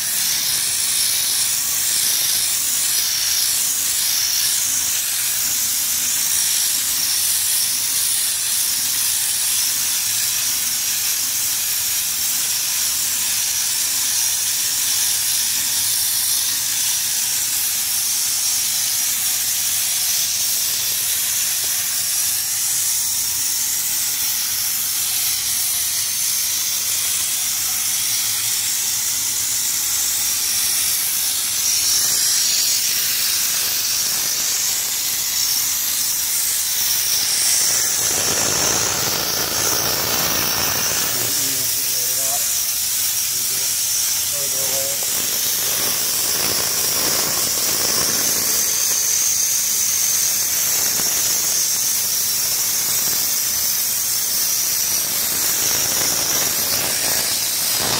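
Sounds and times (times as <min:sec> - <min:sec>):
spray gun hissing: 0:00.0 - 0:57.9.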